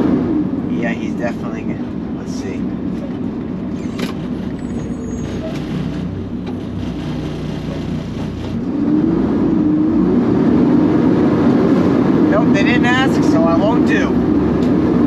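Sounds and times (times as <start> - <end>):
truck engine running: 0.0 - 9.4.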